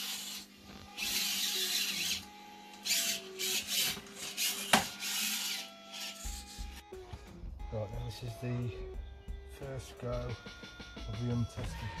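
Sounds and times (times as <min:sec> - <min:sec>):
small electric motor whining: 0:00.0 - 0:06.9.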